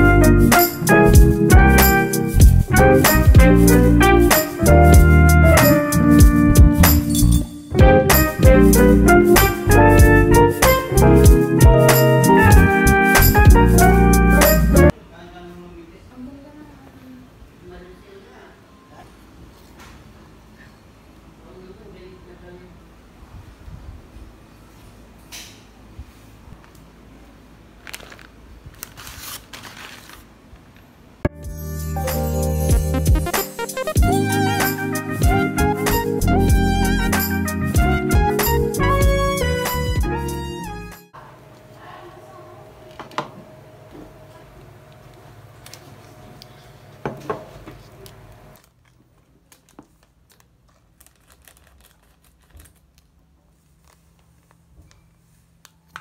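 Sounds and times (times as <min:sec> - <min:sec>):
paper bag rustling and crinkling: 0:27.8 - 0:30.4, 0:48.5 - 0:54.8.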